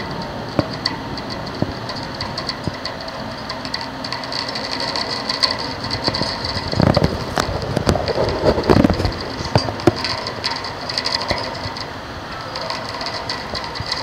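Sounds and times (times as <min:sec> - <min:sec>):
rain hissing: 0:00.0 - 0:14.0
raindrops ticking on hard surface: 0:00.0 - 0:14.0.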